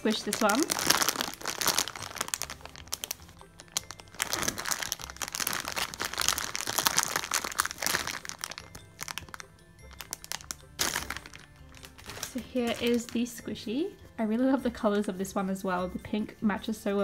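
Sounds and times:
plastic bag crinkling: 0.0 - 13.4
background music: 0.0 - 17.0.

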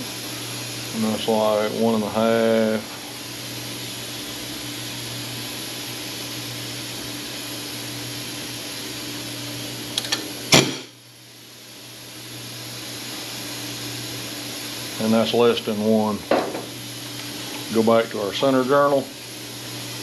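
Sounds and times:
machinery hum: 0.0 - 12.2.

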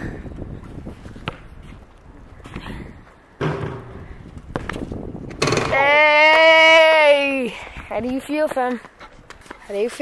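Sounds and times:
basketball bouncing on asphalt: 0.4 - 2.6, 3.4 - 5.9.

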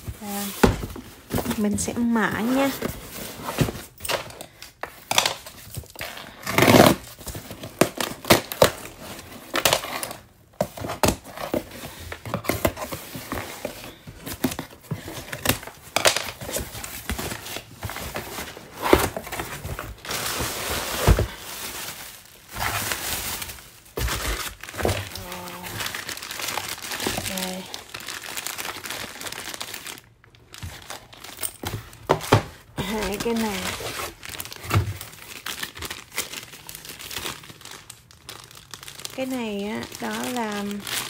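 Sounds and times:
cardboard rustling and scraping: 0.0 - 4.2, 8.8 - 27.8, 30.5 - 35.4
plastic mailer crinkling: 0.1 - 41.0
tape tearing: 5.1 - 8.8.

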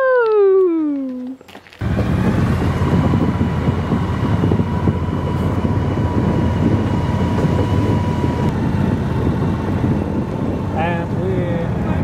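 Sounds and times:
lawn mower engine running: 1.8 - 11.4.

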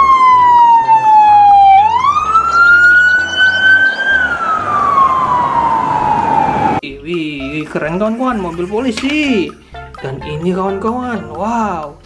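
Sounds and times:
police siren wailing: 0.0 - 6.8.

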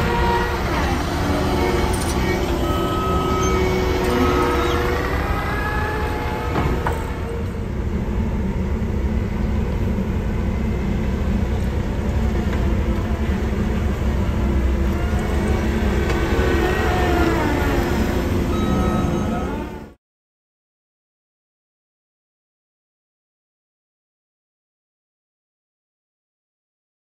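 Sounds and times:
diesel engines running under load: 0.0 - 20.0.

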